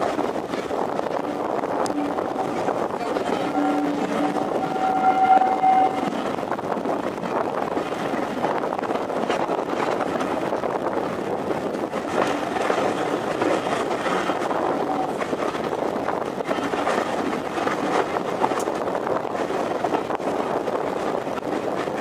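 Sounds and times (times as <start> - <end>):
train coaches rumbling on track: 0.0 - 22.0
train whistle: 3.3 - 6.1.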